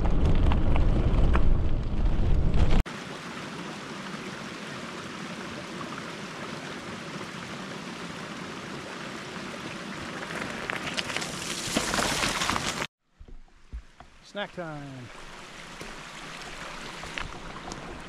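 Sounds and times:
creek water rushing: 2.9 - 11.8, 13.8 - 18.0
bicycle splashing through water: 9.2 - 12.9.

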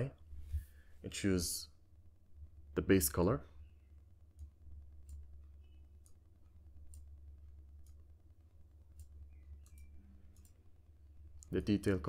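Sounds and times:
low steady hum: 0.0 - 12.0
computer mouse clicks: 4.3 - 7.2, 7.8 - 8.0, 8.9 - 10.6.

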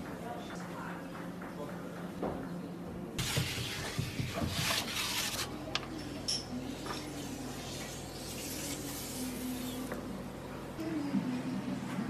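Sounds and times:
pots scraping on stone: 3.2 - 5.5.

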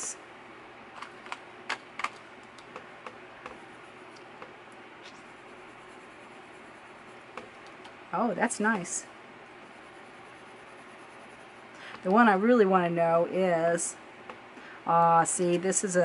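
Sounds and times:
pencil drawing on card: 5.2 - 7.3, 9.6 - 11.6.

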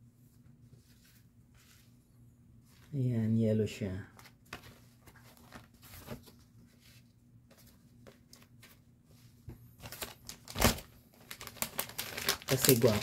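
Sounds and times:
packaging rustling and crinkling: 4.2 - 8.8, 9.8 - 13.0.

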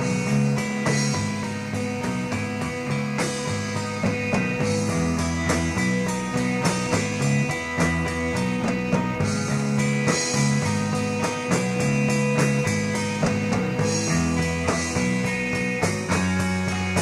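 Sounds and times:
bass line: 0.0 - 17.0
drum kit beat: 0.0 - 17.0
electric guitar: 0.0 - 17.0.

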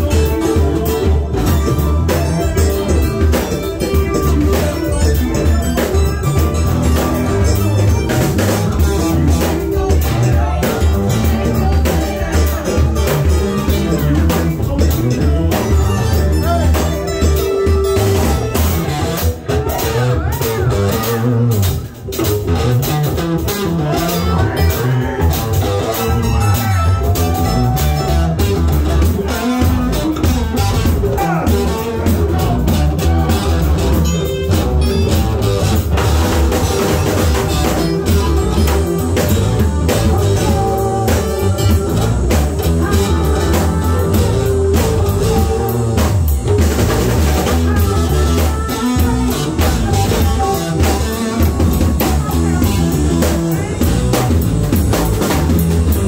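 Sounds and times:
electric guitar: 0.0 - 56.0
electric keyboard: 0.0 - 56.0
steady beat: 0.0 - 56.0.

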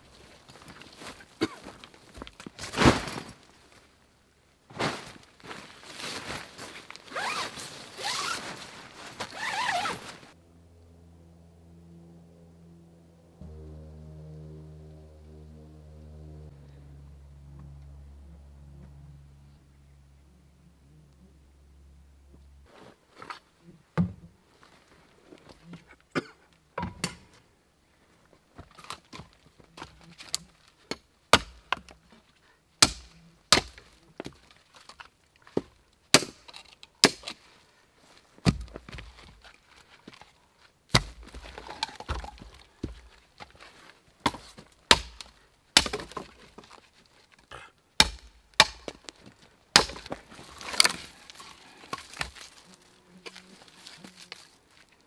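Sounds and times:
machete chopping wood: 30.9 - 31.9, 32.8 - 33.9, 35.6 - 37.4, 38.4 - 38.7, 40.9 - 42.4, 44.2 - 46.4, 48.0 - 49.1, 49.7 - 51.1.

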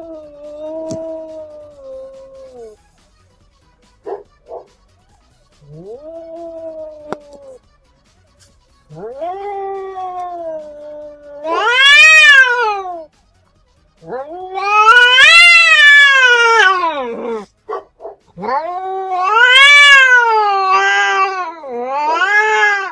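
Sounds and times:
cat yowling: 0.0 - 2.8, 5.6 - 7.6, 8.9 - 13.1, 14.0 - 17.5, 18.1 - 22.9.

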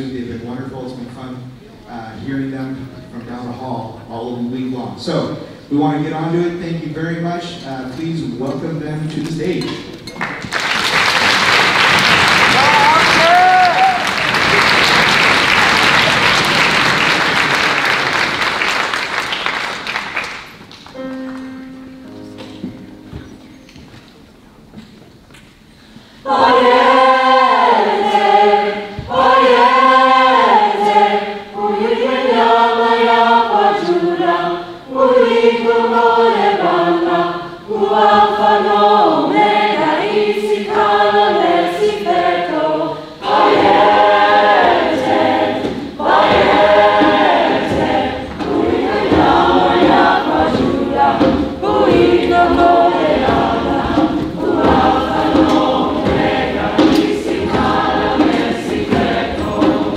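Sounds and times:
mixed choir singing: 25.9 - 59.9.

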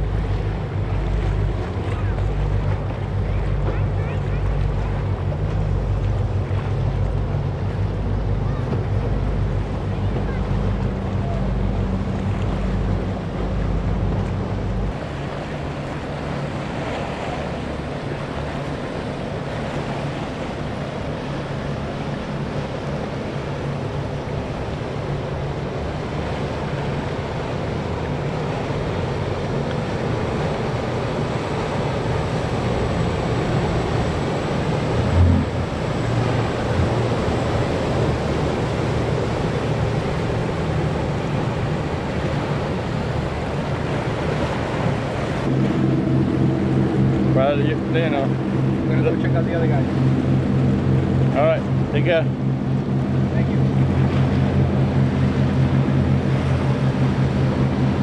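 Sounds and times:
boat engines rumbling: 0.0 - 58.0
waves washing: 0.0 - 58.0
wind buffeting microphone: 28.6 - 58.0.

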